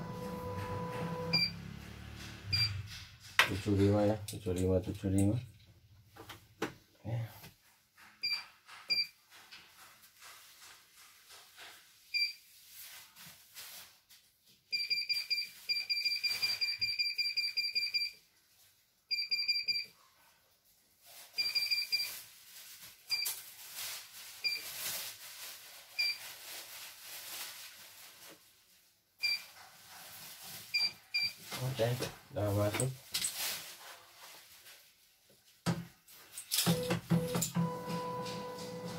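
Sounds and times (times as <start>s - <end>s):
short high beeps: 0.0s - 1.6s, 2.5s - 2.8s.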